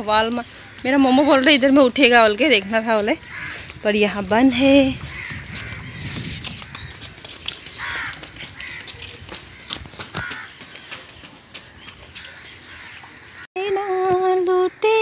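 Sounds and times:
crow cawing: 0:03.2 - 0:03.8, 0:05.0 - 0:11.0, 0:12.2 - 0:13.5
footsteps on paving: 0:05.0 - 0:12.9.

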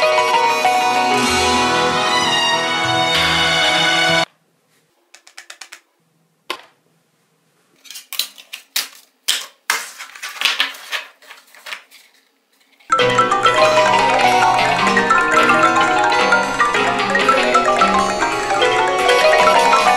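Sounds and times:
marimba ringtone music: 0:00.0 - 0:04.3, 0:12.9 - 0:19.9
objects stacked on tabletop: 0:04.8 - 0:06.8.

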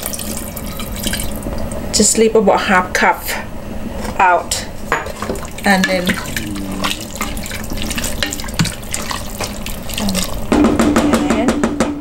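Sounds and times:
spatula knocking and scraping pot: 0:04.9 - 0:11.7
liquid sloshing and squelching: 0:05.1 - 0:10.5.

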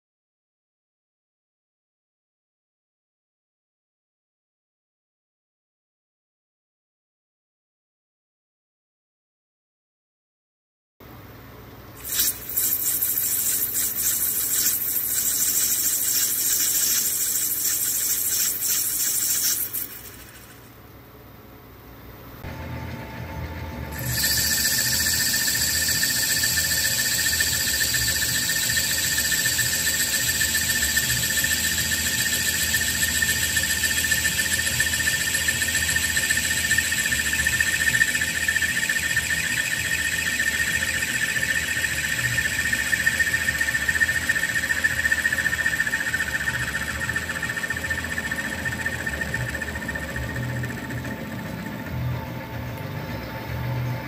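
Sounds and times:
lathe cutting tool squealing: 0:12.0 - 0:20.6, 0:24.0 - 0:52.3
lathe motor humming: 0:12.2 - 0:20.5, 0:24.0 - 0:53.9.

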